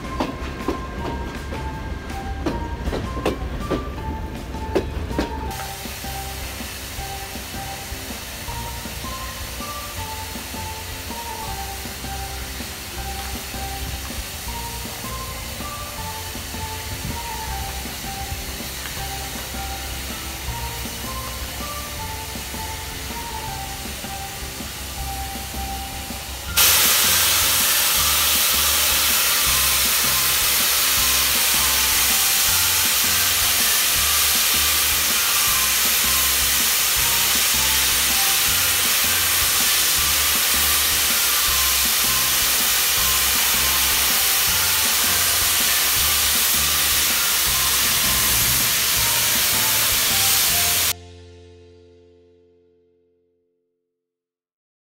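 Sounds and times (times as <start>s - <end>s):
loud hiss of steam: 0.0s - 51.0s
music with repeating bass line: 5.5s - 51.2s.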